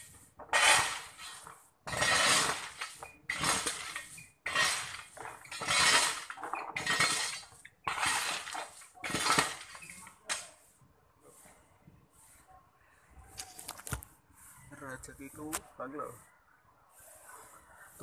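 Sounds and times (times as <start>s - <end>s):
shovel scraping gravel: 0.0s - 10.6s.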